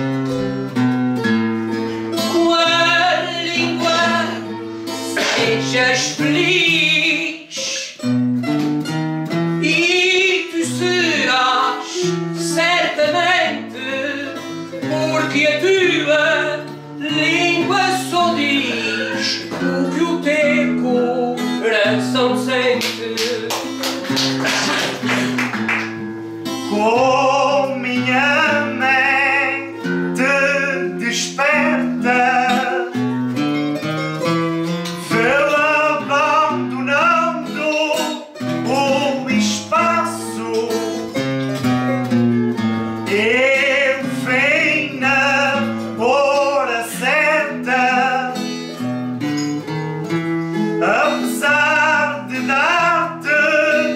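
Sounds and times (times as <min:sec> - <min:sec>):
plucked guitars playing: 0:00.0 - 0:53.9.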